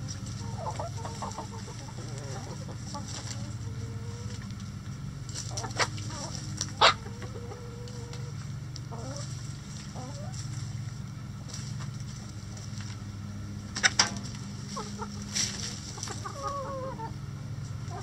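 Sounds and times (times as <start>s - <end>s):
chickens clucking: 0.0s - 18.0s
steady low hum: 0.0s - 18.0s
low hen calls: 16.0s - 18.0s.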